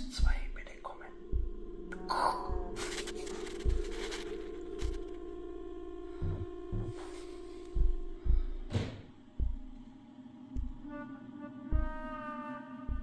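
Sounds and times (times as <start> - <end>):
dull low knocks: 0.0 - 9.8, 10.5 - 10.9, 11.7 - 12.2
electronic hum-like tone: 1.1 - 8.2.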